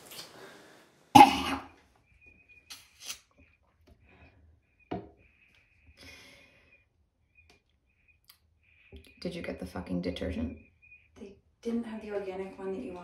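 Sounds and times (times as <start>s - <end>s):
woman coughing: 1.2s - 1.7s.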